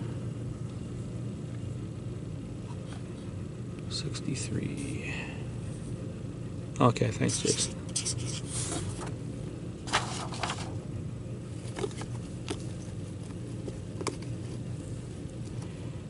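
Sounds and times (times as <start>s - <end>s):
steady low hum: 0.0s - 16.0s
marker scratching on paper: 7.3s - 9.0s.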